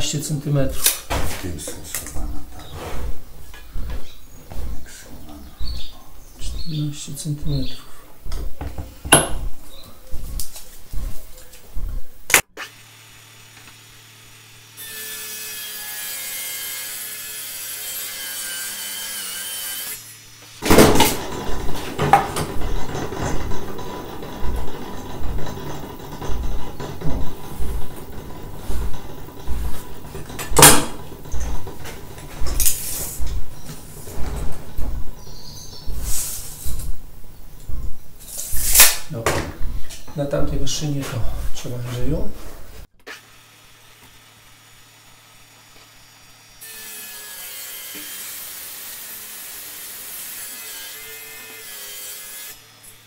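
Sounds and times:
table saw cutting wood: 0:12.5 - 0:34.5, 0:43.0 - 0:53.0
sharp metal clank: 0:20.6 - 0:31.8
hand tools clinking on wood: 0:20.6 - 0:35.9.

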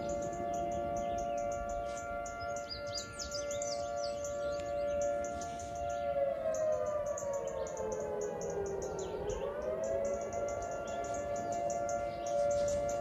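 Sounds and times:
two-tone siren: 0:00.0 - 0:13.0.

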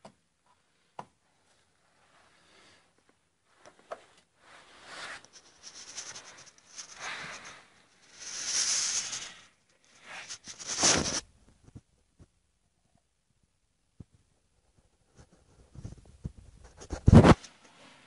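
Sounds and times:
rustling scraping rubs: 0:04.4 - 0:11.3, 0:15.2 - 0:17.9.

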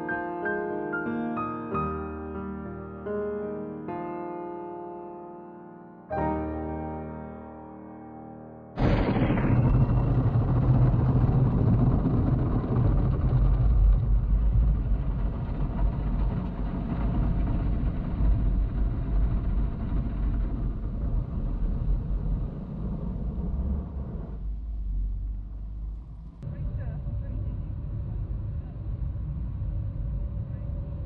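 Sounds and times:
low rumble: 0:08.8 - 0:31.0.

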